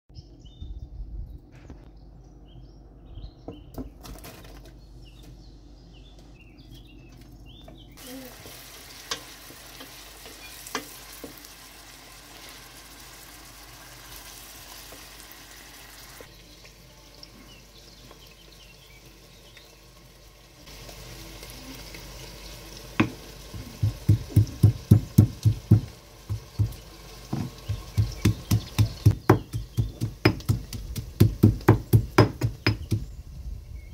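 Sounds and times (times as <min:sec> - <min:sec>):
onions sizzling in oil: 0:08.0 - 0:33.1
pestle pounding in mortar: 0:23.0 - 0:26.8, 0:27.4 - 0:33.1
spoon knocking pot: 0:23.8 - 0:33.0.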